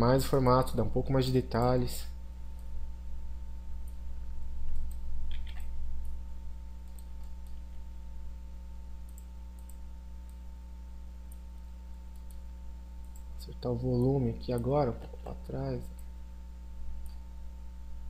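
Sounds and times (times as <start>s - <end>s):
low electrical hum: 0.0s - 18.0s
computer mouse clicking: 4.6s - 5.8s, 6.8s - 7.6s, 9.1s - 10.4s, 12.1s - 12.4s.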